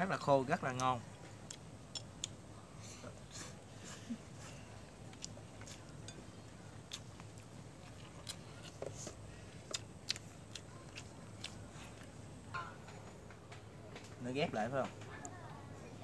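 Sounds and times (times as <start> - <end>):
faint low hum: 0.0 - 16.0
chewing noodles: 1.2 - 2.4, 4.3 - 12.2.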